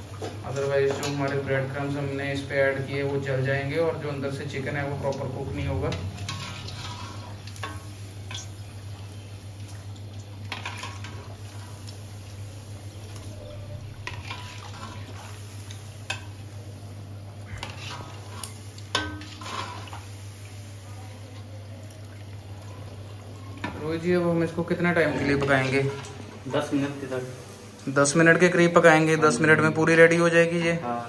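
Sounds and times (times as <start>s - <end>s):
frying in hot oil: 0.0s - 30.7s
steady low hum: 1.4s - 28.1s
metal utensil scraping a wok: 5.6s - 8.6s, 14.0s - 15.4s, 17.5s - 20.0s, 24.9s - 26.2s.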